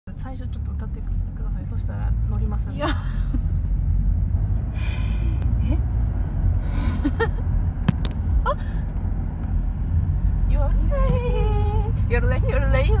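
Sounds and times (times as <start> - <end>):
car driving rumble inside cabin: 0.1 - 13.0
short vocal sounds and breaths: 4.7 - 7.0.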